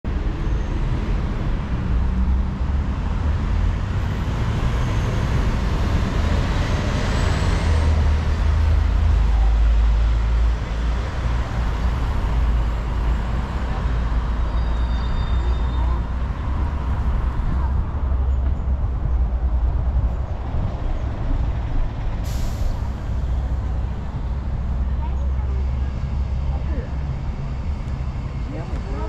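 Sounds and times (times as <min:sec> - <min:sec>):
road traffic going by: 0:00.1 - 0:29.0
loud vehicle passing: 0:01.0 - 0:22.2.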